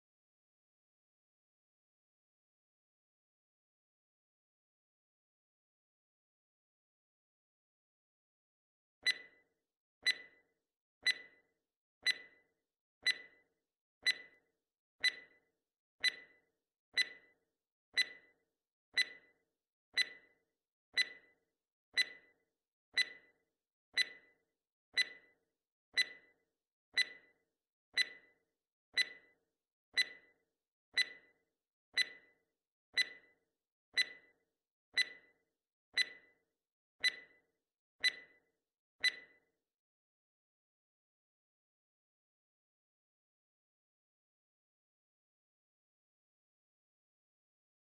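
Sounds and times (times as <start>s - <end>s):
clock ticking: 10.0s - 10.3s, 11.0s - 11.3s, 12.0s - 12.3s, 13.0s - 13.3s, 14.0s - 14.3s, 17.0s - 17.2s, 18.0s - 18.2s, 19.0s - 19.2s, 20.0s - 20.2s, 21.0s - 21.2s, 22.0s - 22.2s, 23.0s - 23.2s, 24.0s - 24.2s, 25.0s - 25.2s, 26.0s - 26.2s, 27.0s - 27.2s, 28.0s - 28.2s, 29.0s - 29.2s, 30.0s - 30.2s, 31.0s - 31.2s, 32.0s - 32.2s, 33.0s - 33.2s, 34.0s - 34.2s, 35.0s - 35.2s, 36.0s - 36.2s.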